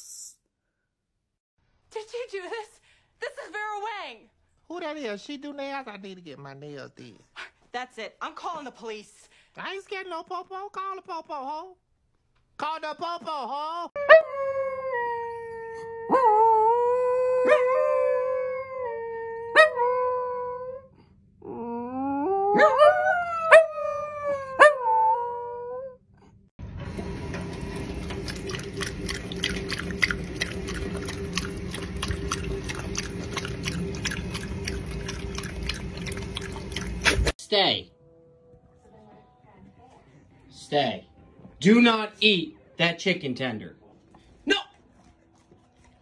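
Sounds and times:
dogs howling: 0:21.5 - 0:26.0.

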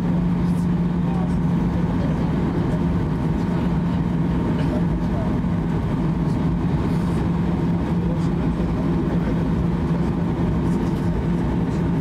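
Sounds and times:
aircraft engines humming: 0:00.0 - 0:12.0
cabin rumble: 0:00.0 - 0:12.0.

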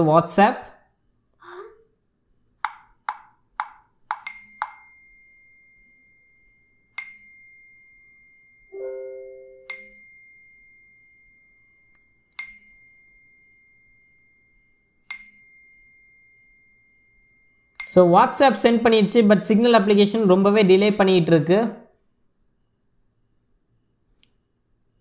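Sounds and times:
sharp ringing pings: 0:02.7 - 0:18.1
steady high ringing tone: 0:02.7 - 0:18.6
short low chime: 0:08.7 - 0:10.2.

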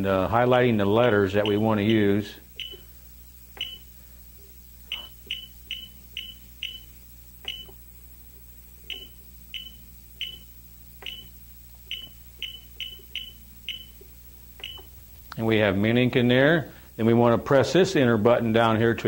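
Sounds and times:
short high keypad beeps: 0:02.6 - 0:02.8, 0:03.6 - 0:03.8, 0:04.9 - 0:07.8, 0:11.0 - 0:11.3, 0:14.6 - 0:14.9.

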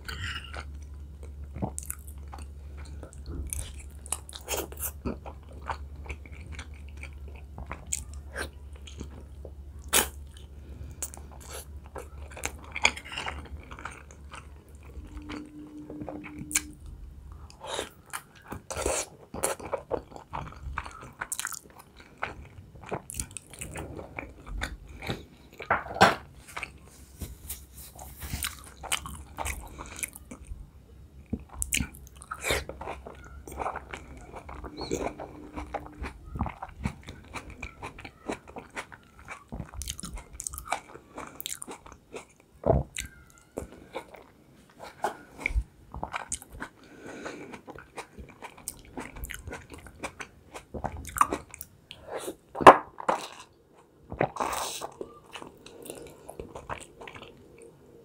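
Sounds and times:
low steady hum: 0:00.0 - 0:58.0
wet chewing: 0:31.3 - 0:57.7.

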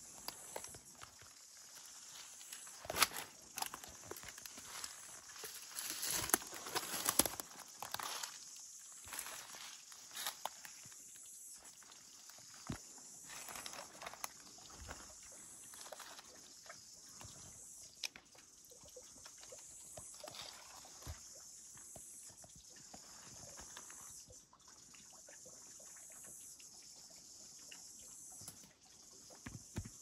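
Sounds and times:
forest ambience hiss: 0:00.0 - 0:30.0
footsteps on leaf litter: 0:00.2 - 0:10.8, 0:12.6 - 0:15.1
twigs snapping: 0:02.1 - 0:08.4.

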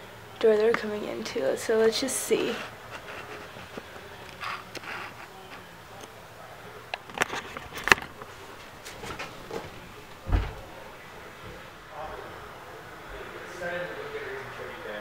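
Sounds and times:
footstep thump on floor: 0:09.0 - 0:10.7.

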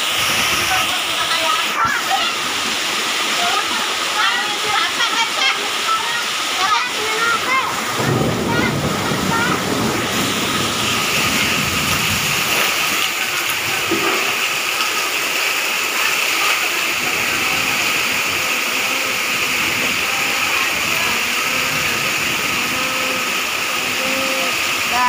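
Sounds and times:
heavy rain pouring: 0:00.0 - 0:25.0
water splashing on tiled floor: 0:00.0 - 0:25.0.

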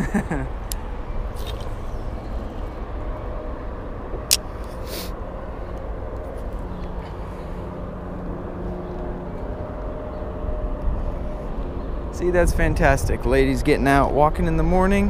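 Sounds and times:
distant traffic rumble: 0:00.0 - 0:15.0
sharp click: 0:04.3 - 0:04.8.

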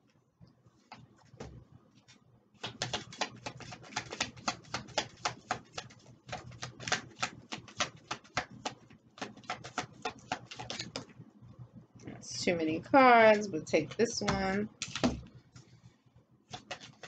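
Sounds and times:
cards being shuffled: 0:02.6 - 0:11.1, 0:16.5 - 0:17.0.

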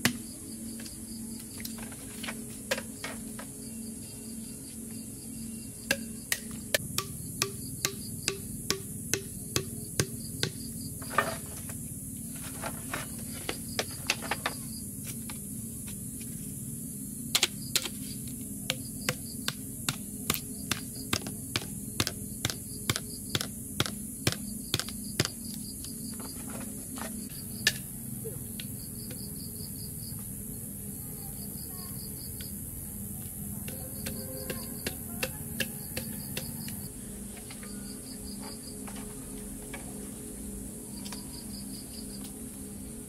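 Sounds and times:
high insect drone: 0:00.0 - 0:43.0
sharp knocks on wood: 0:05.9 - 0:10.6.

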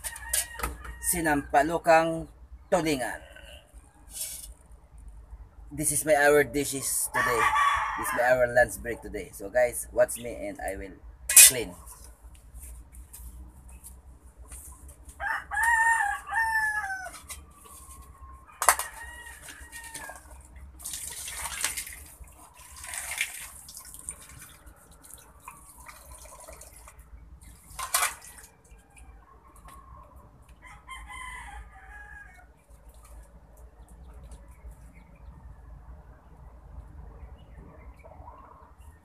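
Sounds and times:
rooster crowing: 0:00.0 - 0:01.4, 0:07.0 - 0:08.4, 0:15.2 - 0:17.3, 0:18.2 - 0:20.3, 0:29.9 - 0:32.5
water splashing into metal pan: 0:20.8 - 0:28.5.

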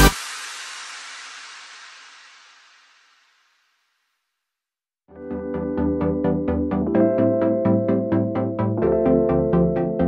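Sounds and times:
pulsing synthesizer chords: 0:05.1 - 0:10.0.

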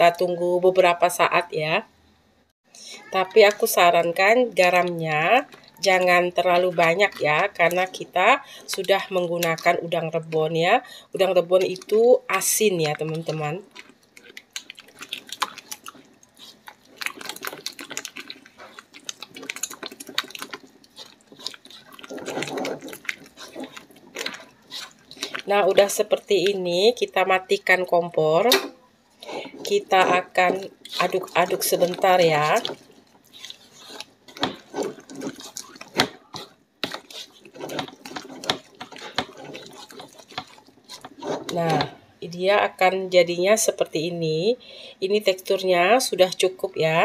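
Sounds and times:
spatula scraping thick paste: 0:11.2 - 0:26.7, 0:29.2 - 0:42.0.

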